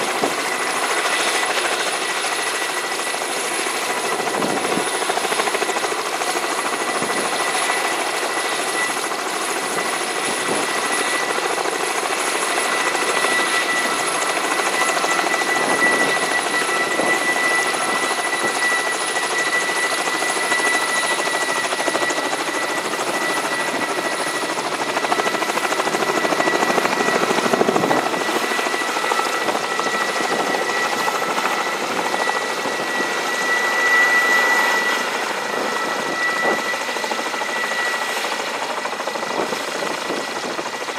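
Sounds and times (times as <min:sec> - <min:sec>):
helicopter rotors rushing: 0:00.0 - 0:40.9
turbine engine whine: 0:00.0 - 0:40.9.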